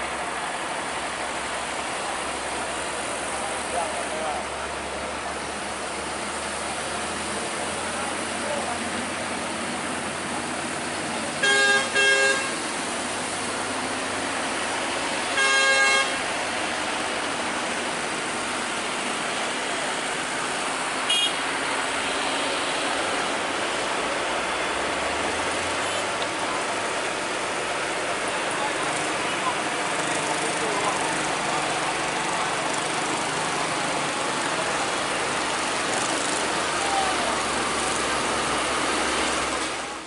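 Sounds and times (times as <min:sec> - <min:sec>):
heavy vehicle engines: 0:00.0 - 0:40.0
vehicle horn blasts: 0:11.4 - 0:12.6, 0:15.3 - 0:16.2, 0:21.1 - 0:21.4.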